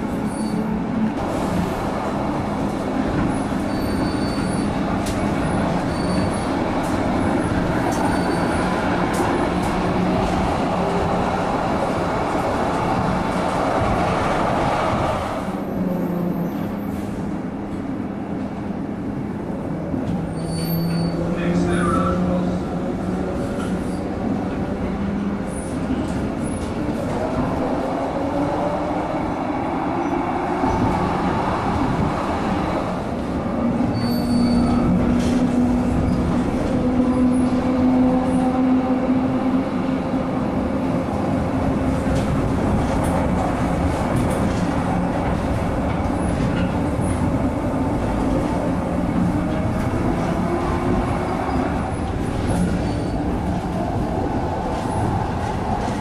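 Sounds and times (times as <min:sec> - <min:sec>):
tram wheels rumbling on rails: 0:00.0 - 0:56.0
brief high squeal: 0:03.7 - 0:04.7, 0:20.4 - 0:21.2, 0:33.9 - 0:34.8.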